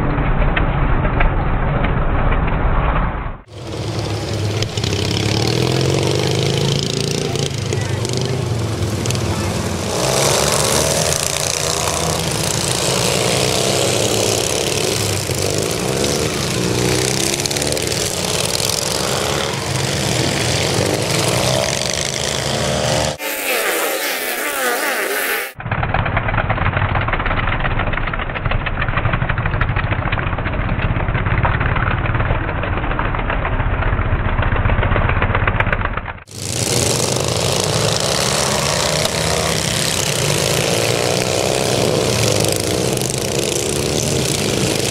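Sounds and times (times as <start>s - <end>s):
lawn mower engines revving: 3.4s - 25.6s, 36.3s - 44.9s.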